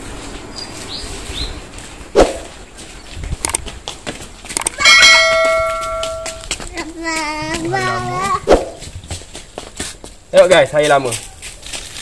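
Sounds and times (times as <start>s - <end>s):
sharp clicks: 3.4s - 3.7s, 4.5s - 4.8s.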